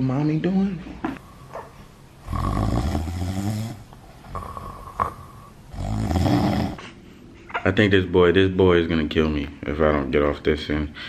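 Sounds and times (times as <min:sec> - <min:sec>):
woman snoring: 0:02.2 - 0:06.8.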